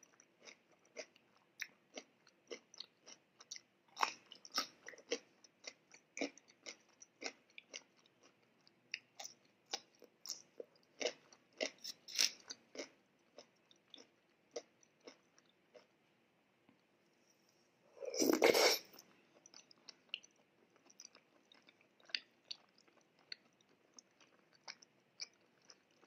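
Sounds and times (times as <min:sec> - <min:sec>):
chewing mouth clicks: 0:19.4 - 0:26.0.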